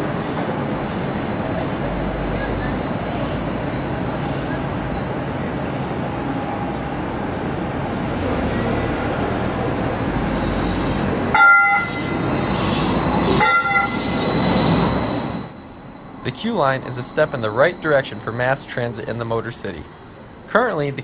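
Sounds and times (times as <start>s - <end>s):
streetcar passing: 0.0s - 21.0s
streetcar horn toots: 11.3s - 12.0s, 13.3s - 14.0s.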